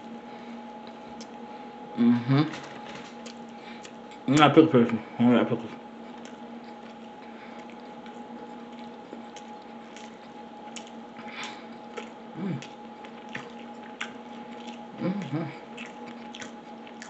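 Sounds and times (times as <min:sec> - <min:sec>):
steady low hum: 0:00.0 - 0:17.0
person chewing with wet smacking: 0:00.8 - 0:01.4, 0:03.1 - 0:05.0, 0:06.0 - 0:17.0
person humming: 0:02.0 - 0:02.7, 0:12.4 - 0:12.8, 0:15.0 - 0:15.7.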